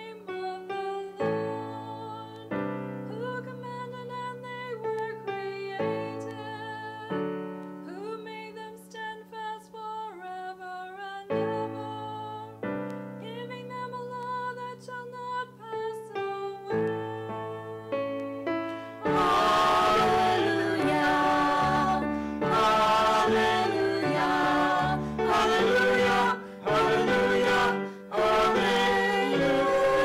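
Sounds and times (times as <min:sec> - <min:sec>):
keyboard music with chords: 0:16.9 - 0:30.0.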